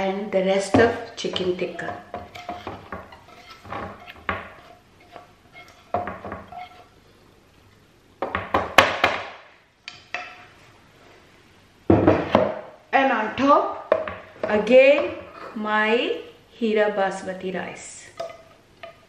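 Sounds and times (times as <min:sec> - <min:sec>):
metal cookware clinking and scraping: 0:01.2 - 0:06.9.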